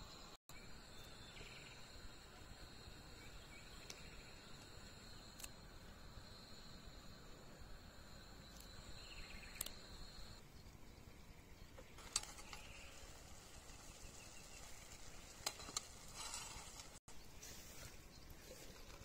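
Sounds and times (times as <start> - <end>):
cricket trilling: 0.6 - 10.7.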